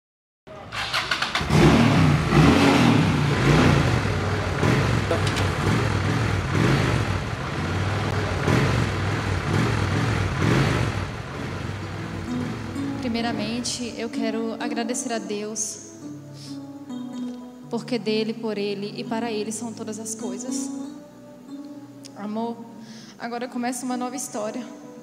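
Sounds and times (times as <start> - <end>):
motorcycle engine starting: 0.5 - 14.4
motorcycle engine revving: 0.6 - 13.9.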